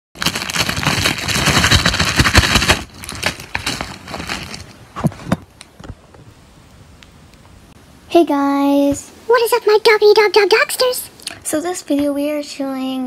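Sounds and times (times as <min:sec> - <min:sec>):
fabric and foam rustling: 0:00.2 - 0:06.1.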